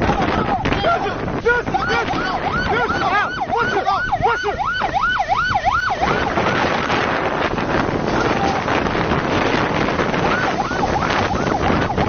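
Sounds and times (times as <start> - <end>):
wind rushing: 0.0 - 12.0
siren wailing: 0.2 - 12.0
waves breaking over a boat: 6.2 - 12.0.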